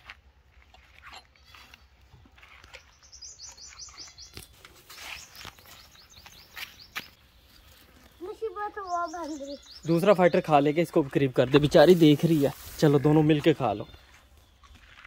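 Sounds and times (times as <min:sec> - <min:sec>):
small birds chirping: 0:01.4 - 0:15.0
soft rustles and scuffs: 0:11.0 - 0:15.0.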